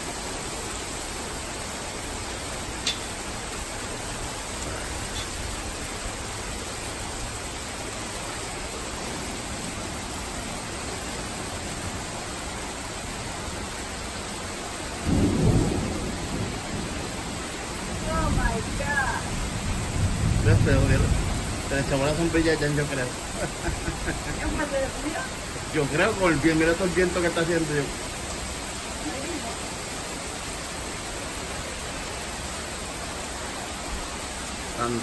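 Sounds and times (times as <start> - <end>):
heavy rain pouring: 0.0 - 35.0
low thunder rumble: 15.0 - 26.0.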